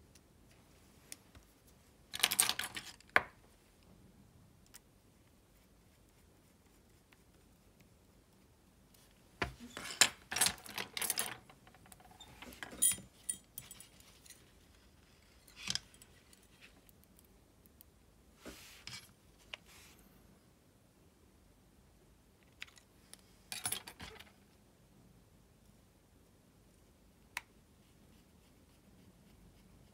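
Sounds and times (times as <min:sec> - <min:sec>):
light metallic clicks and clinks: 0:12.5 - 0:14.5.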